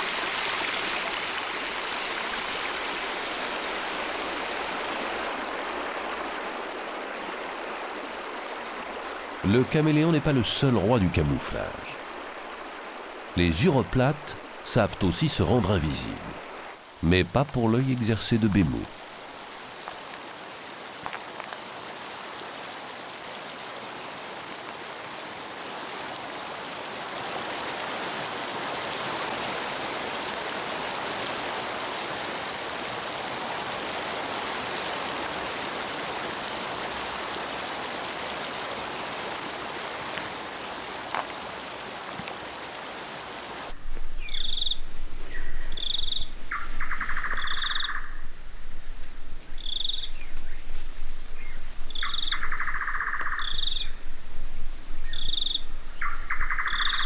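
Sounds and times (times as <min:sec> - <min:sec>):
waterfall and stream rushing: 0:00.0 - 0:57.0
insect chirp: 0:07.2 - 0:20.4, 0:43.7 - 0:57.0
insect high trill: 0:43.7 - 0:57.0
pulsing insect call: 0:43.7 - 0:57.0.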